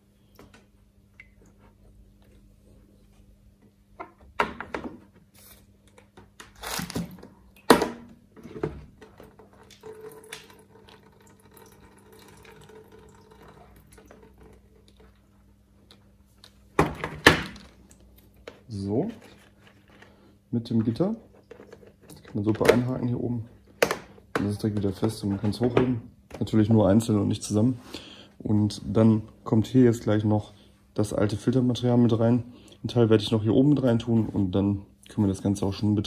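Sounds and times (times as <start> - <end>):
water dripping and trickling: 9.2 - 16.0.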